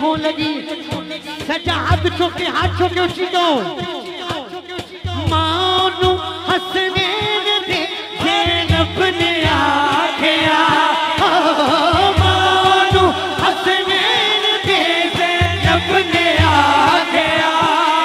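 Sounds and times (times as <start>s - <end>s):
backing chorus chanting: 9.7s - 18.0s.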